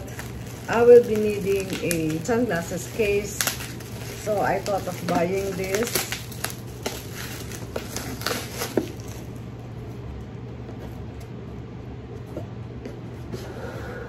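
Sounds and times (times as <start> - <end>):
bubble wrap crackling: 0.0 - 11.2.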